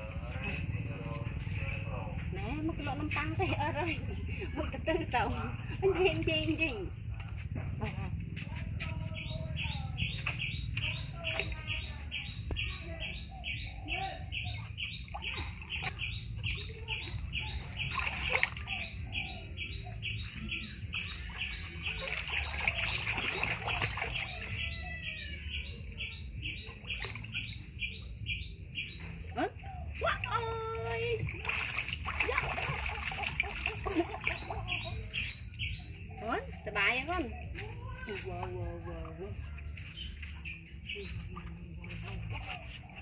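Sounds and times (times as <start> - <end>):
bird chirping: 0.0 - 43.0
water splashing in a plastic tub: 8.6 - 13.2, 14.3 - 19.6, 20.4 - 28.2, 29.0 - 43.0.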